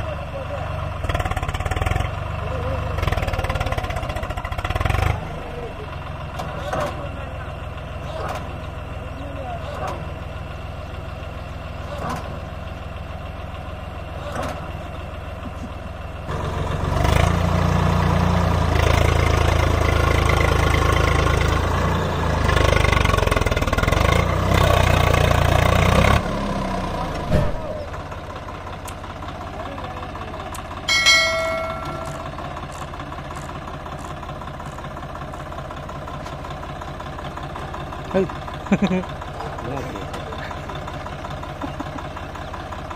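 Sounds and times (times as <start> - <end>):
tractor engine revving: 0.0 - 42.9
short ringing tone: 30.9 - 32.5.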